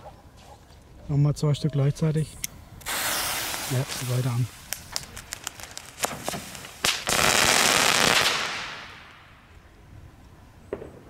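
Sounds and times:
rapid firework crackling: 0:02.8 - 0:09.2
firework sharp crack: 0:02.8 - 0:09.4.

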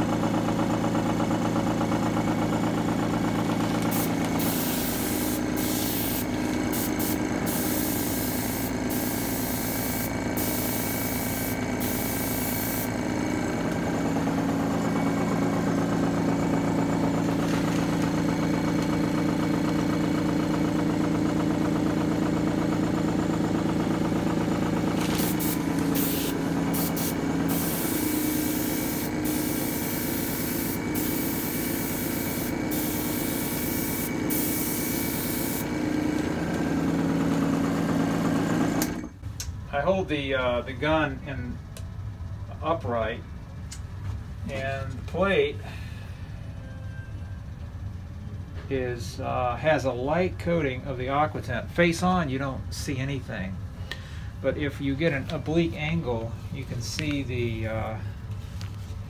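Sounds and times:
air compressor humming: 0:00.0 - 0:39.9
airbrush hissing in spurts: 0:03.8 - 0:13.4, 0:25.0 - 0:35.7.

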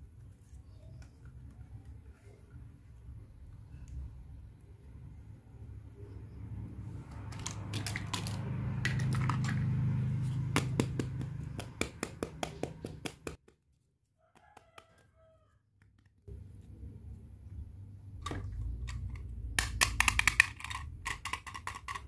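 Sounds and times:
sharp plastic clicks: 0:18.2 - 0:22.0.

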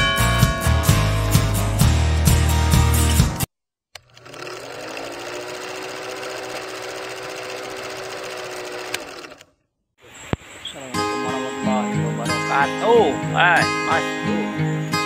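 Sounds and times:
film projector whirring: 0:04.0 - 0:09.5.

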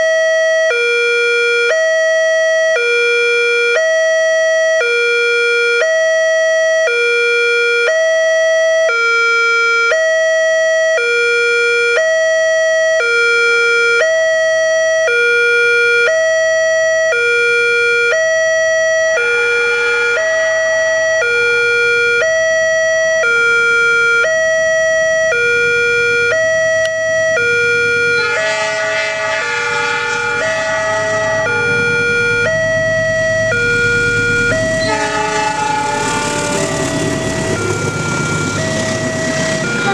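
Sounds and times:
two-tone crossing warning alarm: 0:00.0 - 0:39.9
diesel locomotive rumble: 0:24.3 - 0:39.9.

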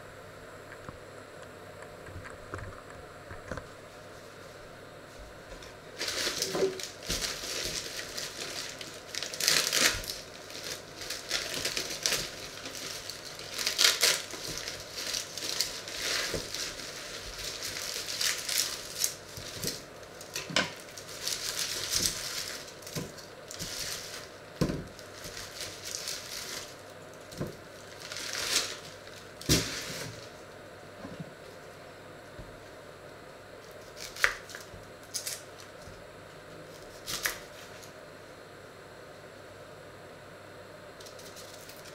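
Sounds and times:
plastic bag crinkling: 0:05.6 - 0:30.4, 0:33.6 - 0:35.8, 0:41.0 - 0:41.9.

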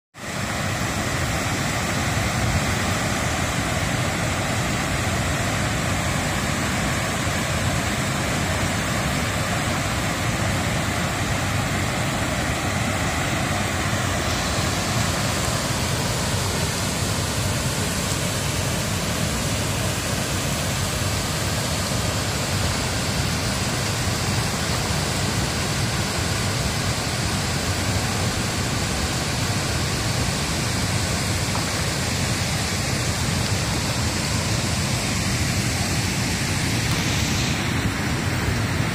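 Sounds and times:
rapids over boulders: 0:00.2 - 0:38.9
waterfall rushing: 0:00.2 - 0:38.9.

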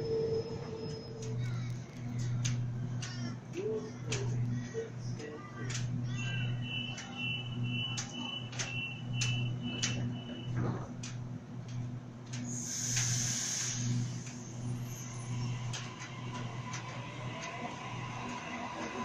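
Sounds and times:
steady low hum: 0:00.0 - 0:19.0
train motors whining: 0:00.0 - 0:19.0
door warning beeps: 0:06.3 - 0:10.8
train doors shutting: 0:08.1 - 0:11.1, 0:12.4 - 0:19.0
air hiss: 0:12.5 - 0:14.5.

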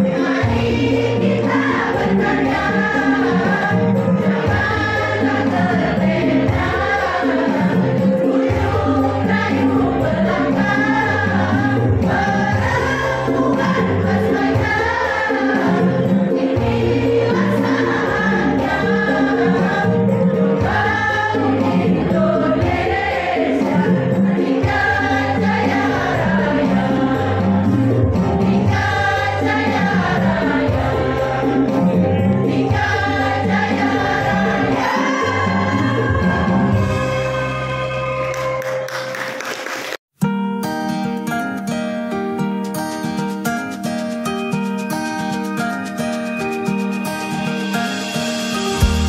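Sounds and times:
women's choir singing: 0:00.0 - 0:38.5
low musical accompaniment: 0:00.0 - 0:39.3, 0:44.0 - 0:49.0.

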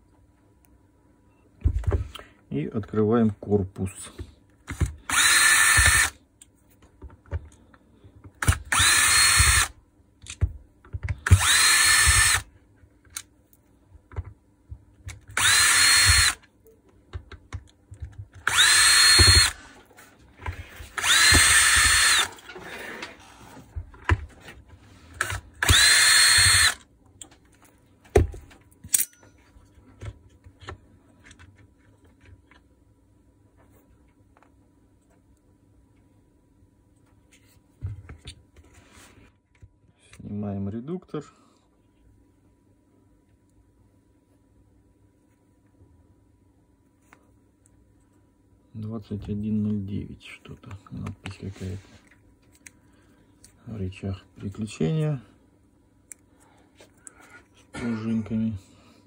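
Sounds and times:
cordless drill motor whine: 0:05.1 - 0:06.2, 0:08.4 - 0:09.7, 0:11.2 - 0:12.5, 0:15.4 - 0:16.4, 0:18.4 - 0:19.6, 0:20.9 - 0:22.4, 0:25.2 - 0:26.8.

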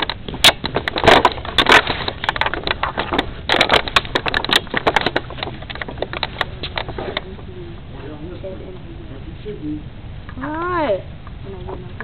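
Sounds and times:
irregular crackles and clicks: 0:00.0 - 0:07.9.

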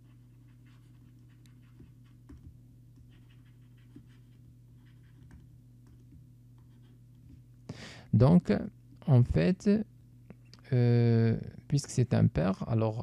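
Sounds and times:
stylus scratching on tablet: 0:00.0 - 0:07.4
low electrical hum: 0:00.0 - 0:13.0.

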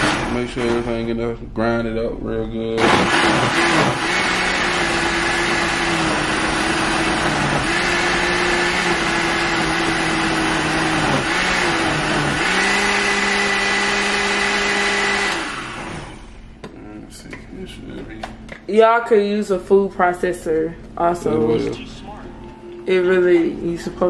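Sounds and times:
blender grinding: 0:00.0 - 0:00.8, 0:02.8 - 0:16.4.

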